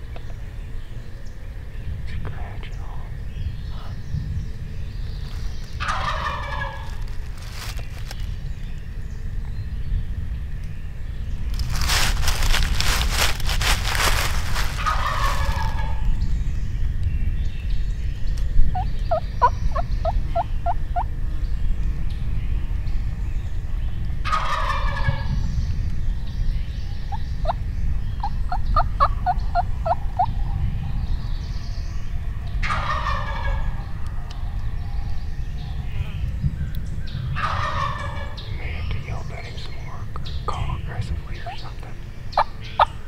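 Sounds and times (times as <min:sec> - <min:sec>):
steady low rumble: 0:00.0 - 0:43.0
turkey gobbling: 0:05.8 - 0:07.7, 0:14.8 - 0:16.0, 0:24.2 - 0:25.2, 0:32.6 - 0:33.9, 0:37.4 - 0:38.5.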